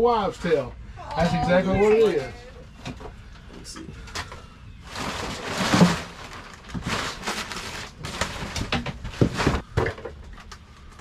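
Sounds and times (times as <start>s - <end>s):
plastic tarp crinkling: 4.8s - 9.8s.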